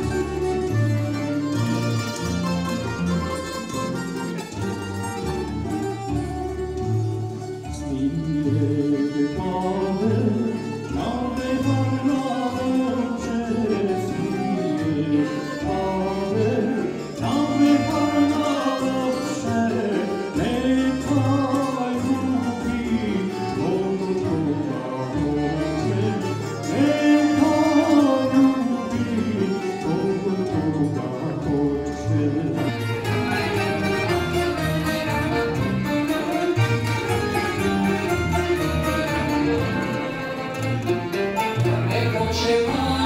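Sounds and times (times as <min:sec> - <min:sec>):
plucked string band: 0:00.0 - 0:43.0
man singing: 0:07.7 - 0:35.2, 0:41.3 - 0:43.0.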